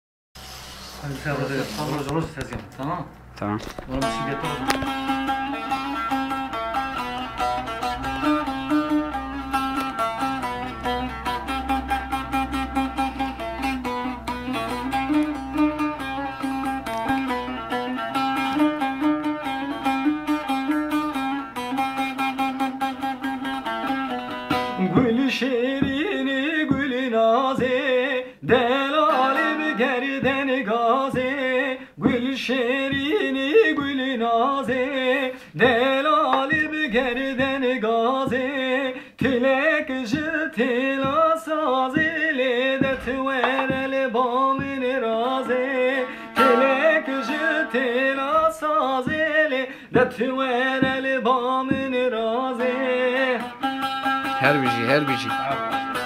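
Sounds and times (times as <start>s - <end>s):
plucked long-necked lute strings: 3.7s - 56.0s
man singing in a wavering voice: 24.7s - 53.6s.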